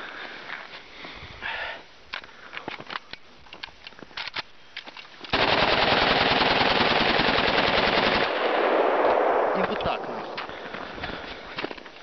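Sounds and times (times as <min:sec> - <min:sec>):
rifle handling clicks and knocks: 0:02.1 - 0:05.4, 0:11.5 - 0:12.0
full-auto gunfire burst: 0:05.3 - 0:10.1.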